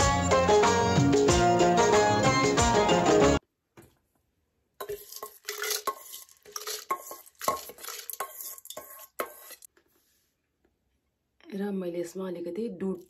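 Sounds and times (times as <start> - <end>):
metal spoon scraping steel bowl: 4.8 - 9.7.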